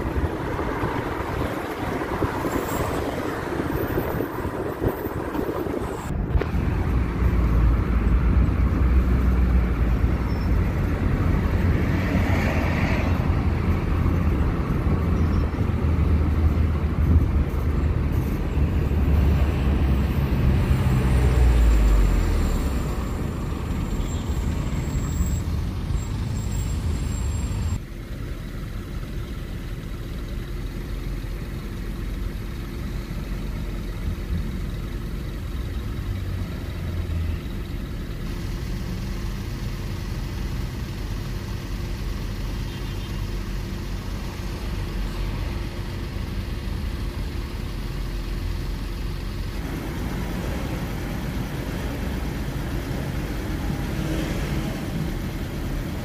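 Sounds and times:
car engine idling: 27.8s - 54.0s.

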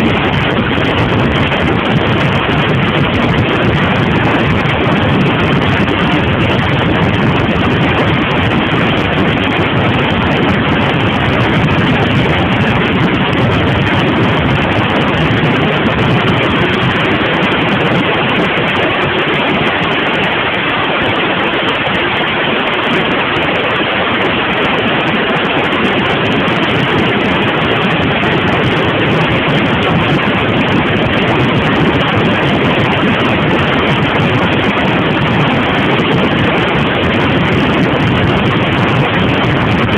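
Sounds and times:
motorcycle engine running: 0.0s - 19.6s
wind rushing on microphone: 0.0s - 39.9s.

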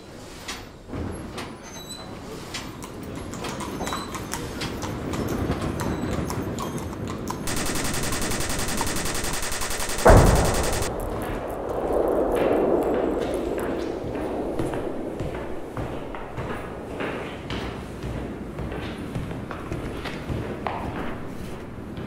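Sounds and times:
fast even rattle: 7.5s - 10.9s
scattered clicks: 7.5s - 10.9s
noise: 7.5s - 15.4s.

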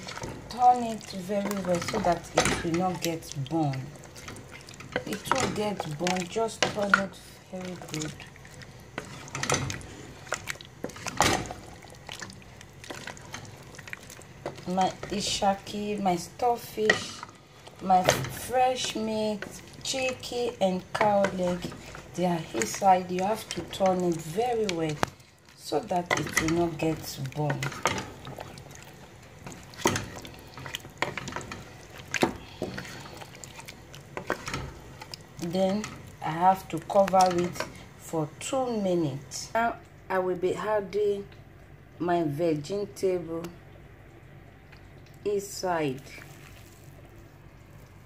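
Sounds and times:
spoon stirring meat in pot: 0.0s - 37.8s.

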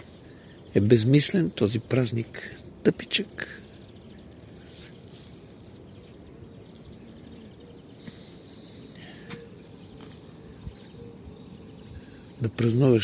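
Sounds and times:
faint background noise: 0.0s - 13.0s
faint chirps: 0.0s - 13.0s.

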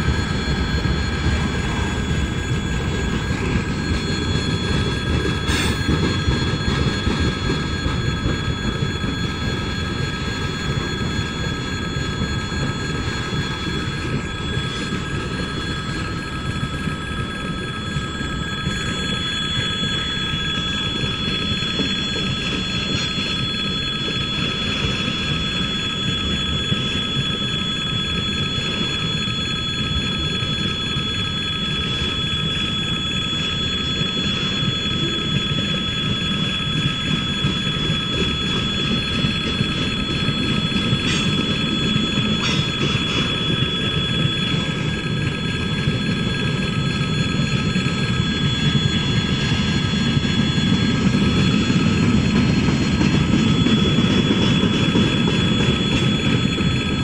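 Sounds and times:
train hissing: 0.0s - 7.0s, 38.8s - 45.4s
crossing warning bell ringing: 0.0s - 26.9s, 33.4s - 57.0s
train wheels rumbling on rails: 0.0s - 27.7s, 32.8s - 57.0s
level crossing warning bell: 31.8s - 57.0s.

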